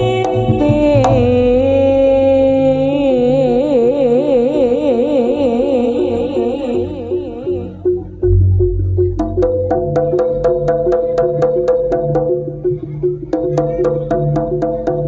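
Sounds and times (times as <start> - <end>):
low drums: 0.0 - 4.8, 5.6 - 15.0
held note with wide vibrato: 0.0 - 10.0.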